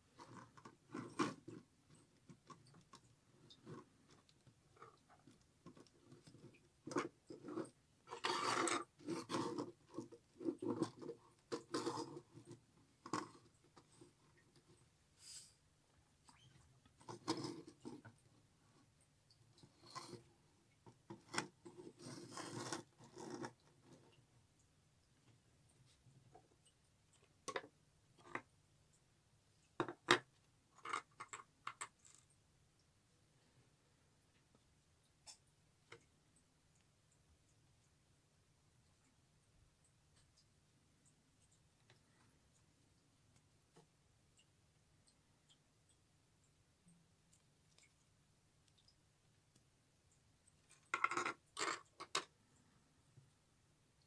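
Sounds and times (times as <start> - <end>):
plastic scrape: 5.8 - 13.9, 21.1 - 23.6.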